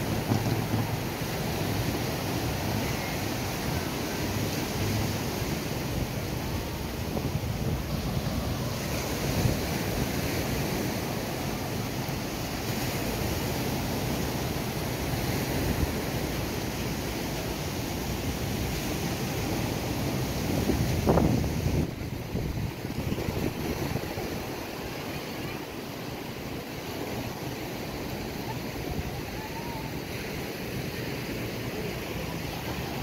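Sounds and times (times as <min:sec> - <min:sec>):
surf washing onto beach: 0:00.0 - 0:33.0
wind buffeting microphone: 0:18.0 - 0:33.0.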